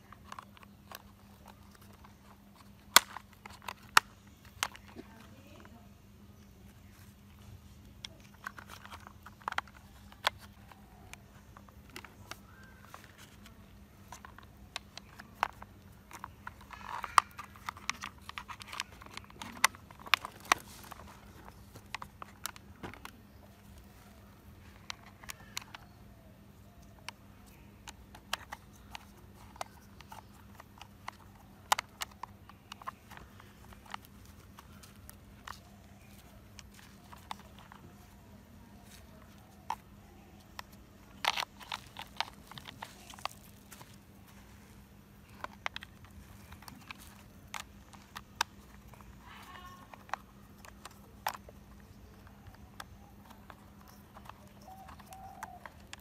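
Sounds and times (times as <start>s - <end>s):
plastic screws being screwed: 0.0s - 5.3s, 8.0s - 38.2s, 38.8s - 44.0s, 45.2s - 56.0s
plastic toy parts clicking: 0.0s - 5.8s, 7.9s - 44.0s, 45.1s - 56.0s.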